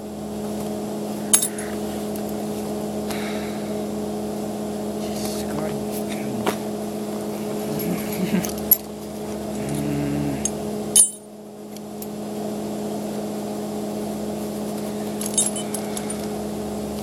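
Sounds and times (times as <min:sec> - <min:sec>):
machinery humming: 0:00.0 - 0:17.0
light metallic clinks: 0:15.2 - 0:16.3.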